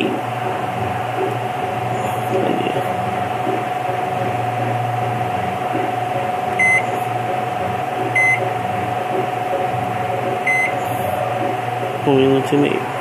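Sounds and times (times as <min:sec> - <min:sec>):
electrical hum: 0:00.0 - 0:13.0
microwave keypad beeps: 0:06.6 - 0:06.9, 0:08.2 - 0:08.4, 0:10.5 - 0:10.8.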